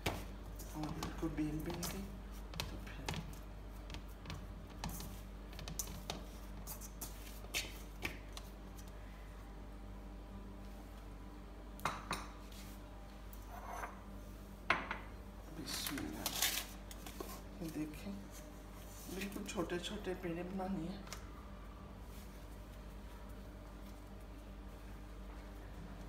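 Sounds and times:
dough kneaded in metal bowl: 0.0 - 8.7
low steady hum: 0.0 - 26.0.

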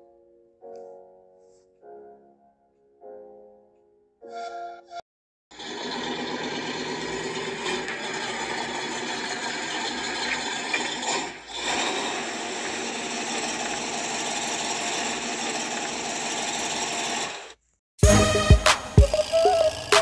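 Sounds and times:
music: 0.0 - 5.0, 18.0 - 20.0.

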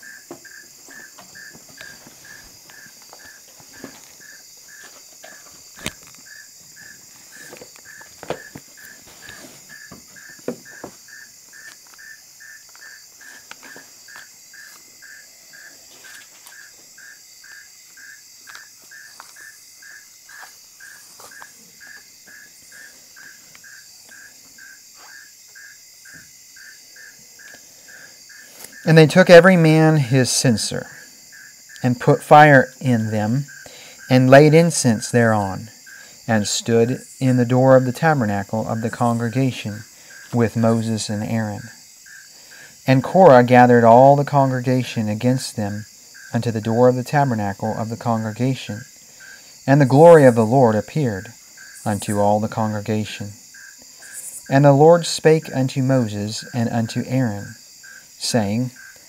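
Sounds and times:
crickets chirping: 0.0 - 59.0
high-pitched insect drone: 0.0 - 59.0
pages turning: 1.5 - 6.3, 7.0 - 9.8, 15.9 - 16.6.

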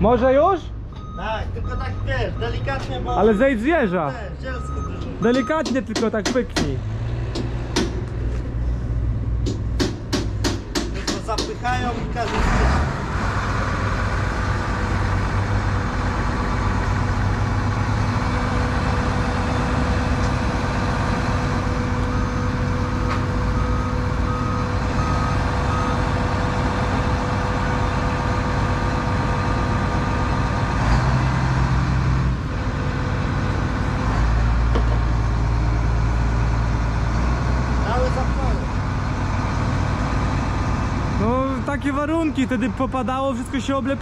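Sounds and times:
beeps: 0.9 - 5.7
tractor engine running: 3.3 - 44.0.

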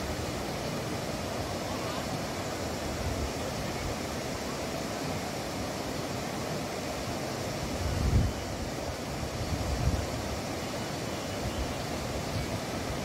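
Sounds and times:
rushing outdoor ambience: 0.0 - 13.0
wind rumbling on microphone: 7.7 - 10.4.

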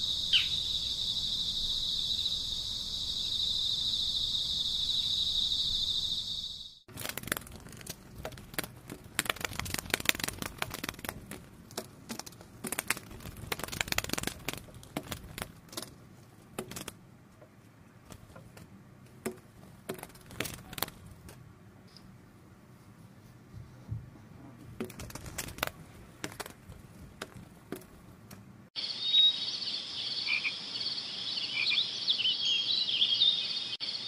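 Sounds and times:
crickets chirping: 0.0 - 6.9, 28.8 - 34.0
clothing rustling and crinkling: 24.6 - 28.3.

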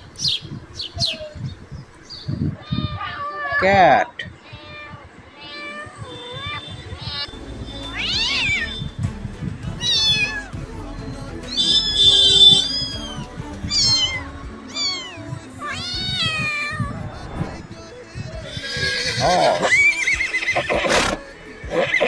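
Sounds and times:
cat meowing: 2.6 - 7.3, 8.0 - 8.8, 9.8 - 10.5, 11.6 - 17.1
background music: 6.6 - 22.0.

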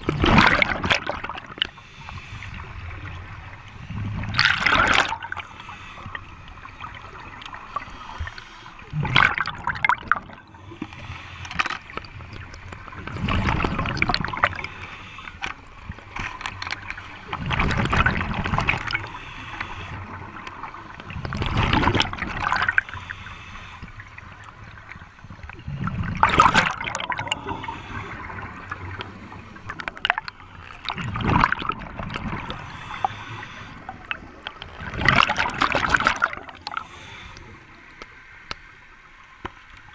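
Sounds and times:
scuba exhale bubbling: 0.0 - 11.2, 17.2 - 37.8.

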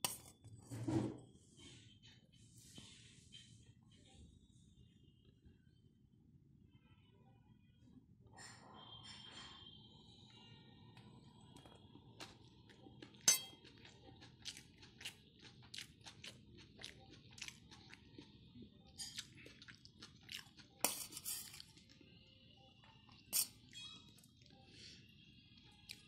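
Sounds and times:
spoon scraping a steel plate: 0.0 - 0.9, 13.2 - 13.6, 20.8 - 21.6, 23.3 - 23.6.

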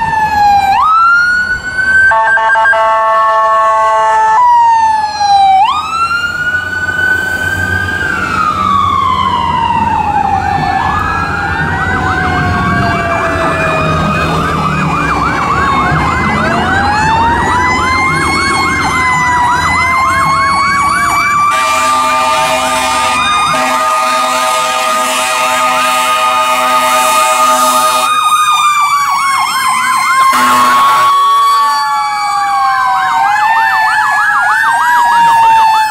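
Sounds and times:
ambulance and fire truck sirens: 0.0 - 35.9
fast yelp siren: 0.0 - 35.9
steady horn blast: 2.1 - 4.4, 21.5 - 28.1, 30.3 - 31.2.

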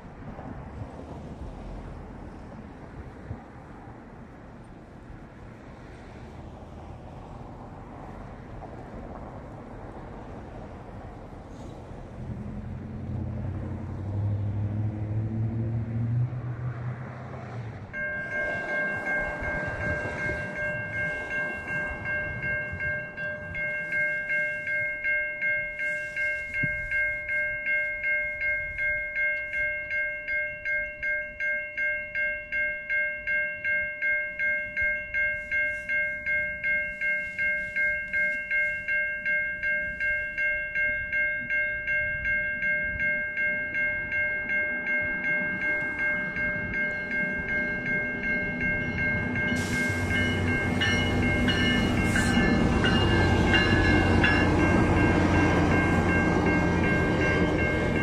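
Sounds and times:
low vehicle engine rumble: 0.1 - 24.0
level crossing bell ringing: 18.0 - 58.0.

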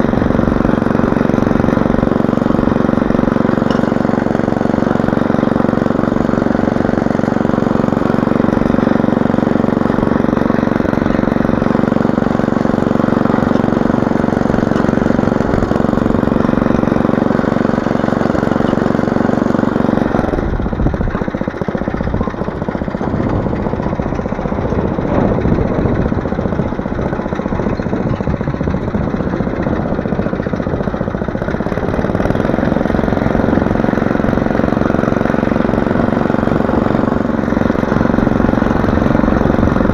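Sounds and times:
small petrol engine running: 0.0 - 39.9.

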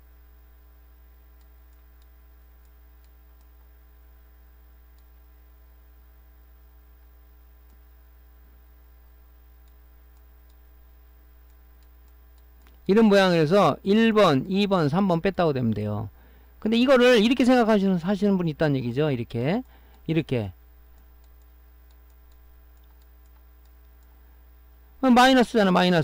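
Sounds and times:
low electrical mains hum: 0.0 - 26.0
faint clicks: 0.7 - 4.2, 4.9 - 5.3, 6.5 - 8.4, 9.6 - 12.9, 19.6 - 20.0, 20.8 - 24.9.

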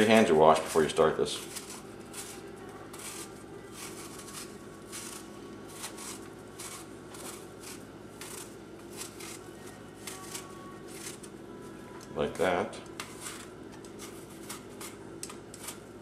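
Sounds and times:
knife scraping apple skin: 0.0 - 11.3, 12.2 - 15.9.

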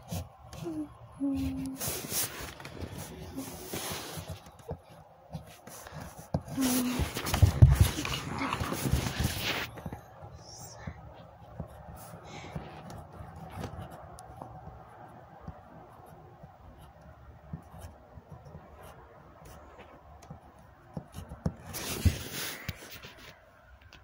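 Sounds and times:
cloth rubbing on microphone: 1.3 - 4.7, 5.4 - 9.9, 21.6 - 23.4.

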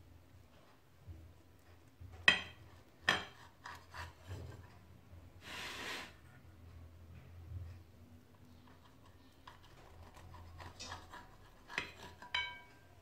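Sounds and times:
knife scraping through crust: 3.2 - 4.6, 9.4 - 12.5
knife clinking on ceramic plate: 11.8 - 12.8.

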